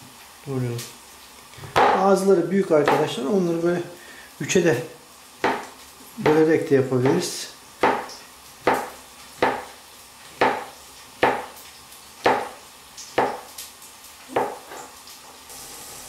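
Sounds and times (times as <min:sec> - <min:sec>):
knife knocking on cutting board: 0:05.4 - 0:06.4, 0:14.3 - 0:14.8.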